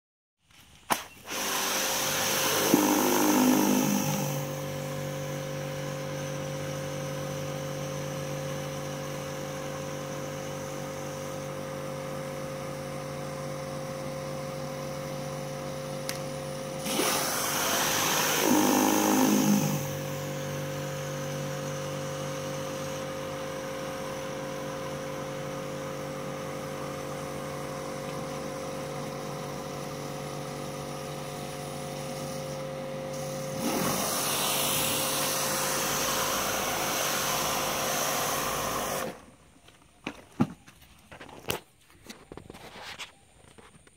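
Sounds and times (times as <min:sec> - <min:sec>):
pressure washer motor hum: 0:01.2 - 0:39.5
hissing water spray: 0:33.2 - 0:39.2.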